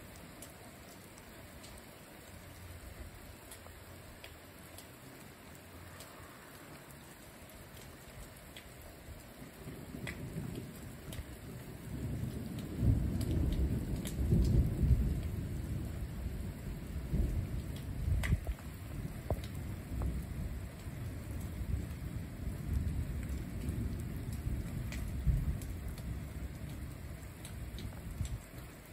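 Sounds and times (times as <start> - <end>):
rain falling: 0.0 - 28.9
thunder rumbling: 9.4 - 28.9.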